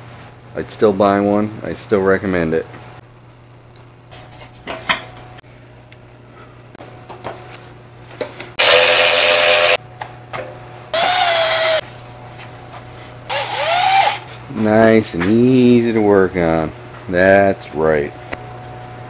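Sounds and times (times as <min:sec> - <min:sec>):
cordless drill driving screws: 0:08.6 - 0:09.8, 0:11.0 - 0:11.8, 0:13.3 - 0:14.2.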